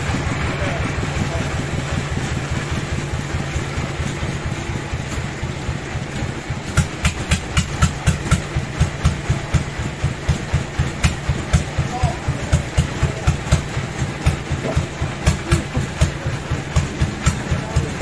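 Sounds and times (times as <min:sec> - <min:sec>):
bandsaw machinery droning: 0:00.0 - 0:18.0.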